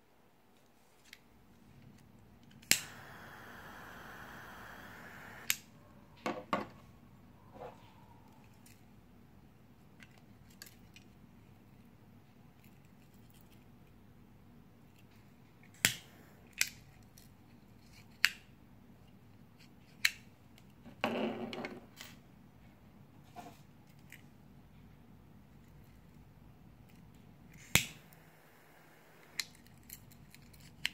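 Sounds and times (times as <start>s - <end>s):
lighter metallic clicks: 2.6s - 5.6s, 15.8s - 16.8s, 27.6s - 28.2s.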